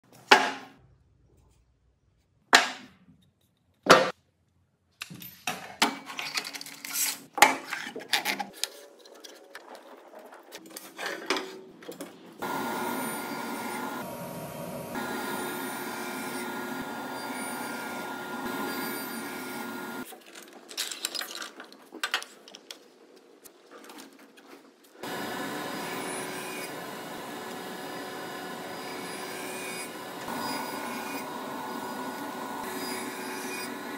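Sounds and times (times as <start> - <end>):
table saw running: 12.4 - 20.1, 25.0 - 33.9.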